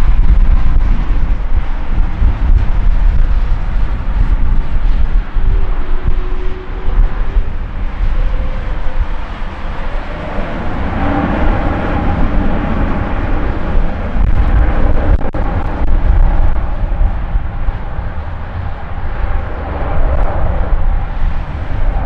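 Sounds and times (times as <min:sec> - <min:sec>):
jet engines deep rumble: 0:00.0 - 0:22.0
steady jet engine tone: 0:00.0 - 0:22.0.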